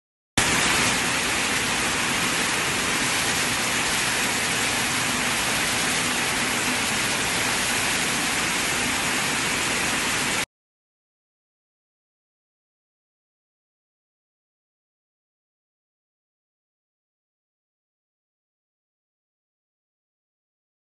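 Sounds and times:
weaving looms hissing: 0.4s - 10.4s.

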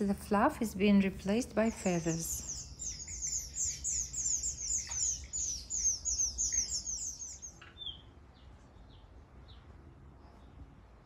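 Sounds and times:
bird nestlings chirping: 1.6s - 7.9s.

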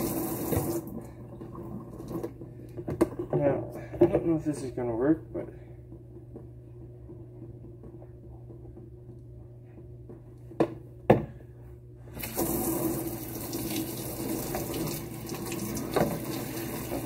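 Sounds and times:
faucet water rushing into sink: 0.0s - 2.3s, 12.2s - 17.0s.

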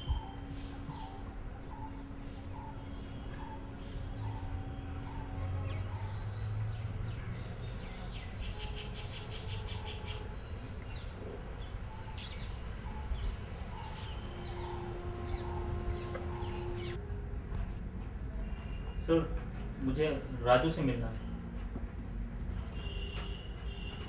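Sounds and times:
birds chirping: 0.0s - 17.0s, 17.6s - 21.6s
low steady rumble: 10.7s - 20.5s.

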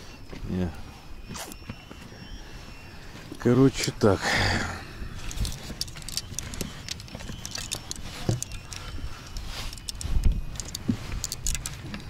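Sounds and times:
wind rumble on microphone: 4.7s - 12.0s
metallic clicks and clinks: 5.2s - 12.0s.

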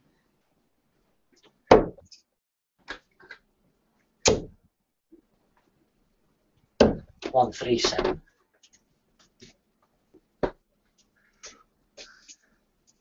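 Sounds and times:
darts striking a dartboard: 1.7s - 2.0s, 4.2s - 4.6s.

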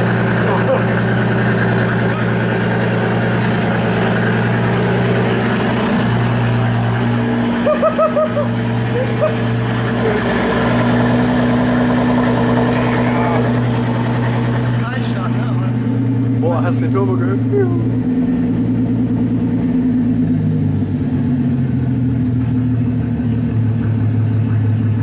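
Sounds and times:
open-pipe engine idling: 0.0s - 25.0s
person laughing: 0.4s - 1.2s, 1.8s - 2.7s, 7.6s - 10.5s, 17.4s - 17.9s.

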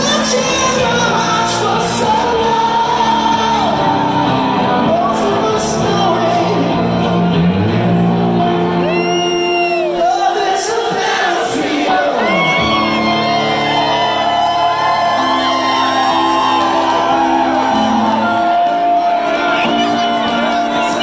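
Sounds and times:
person singing: 0.0s - 7.7s
electric guitar: 0.0s - 10.2s, 12.2s - 21.0s
rock band playing: 0.0s - 21.0s.

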